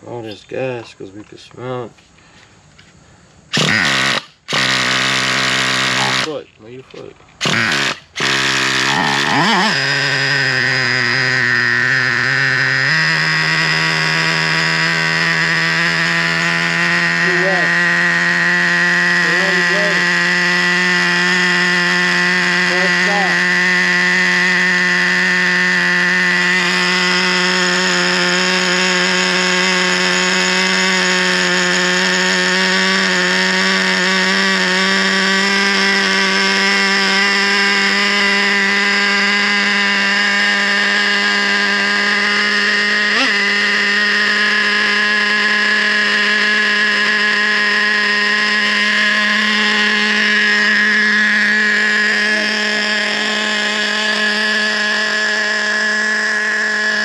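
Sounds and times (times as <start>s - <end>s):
two-stroke engine idling: 3.6s - 6.4s, 7.4s - 57.0s.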